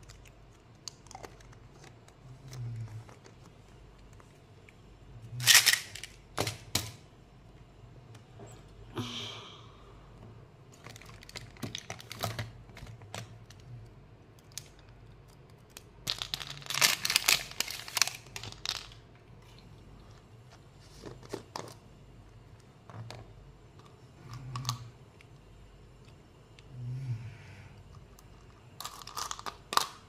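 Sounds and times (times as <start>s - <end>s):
candy wrappers crinkling: 0.0s - 4.3s, 5.4s - 6.7s, 10.8s - 13.7s, 14.4s - 20.2s, 28.1s - 30.0s.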